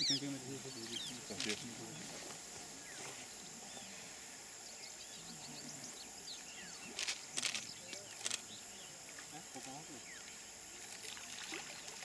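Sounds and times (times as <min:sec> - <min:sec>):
background hiss: 0:00.0 - 0:12.0
animal splashing water: 0:09.2 - 0:12.0.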